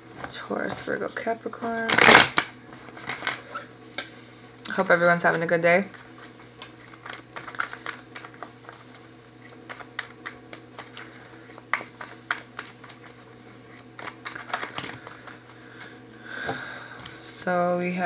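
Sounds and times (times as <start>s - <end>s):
faint steady hum: 0.0s - 18.0s
cards being shuffled: 6.0s - 15.9s.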